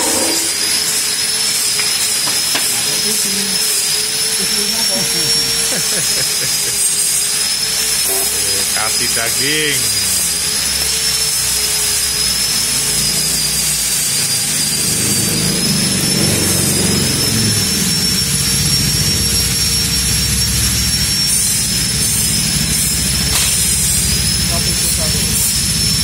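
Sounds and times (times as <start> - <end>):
low hum: 0.0 - 2.2
welder high-pitched whine: 0.0 - 26.0
welder hiss: 0.0 - 26.0.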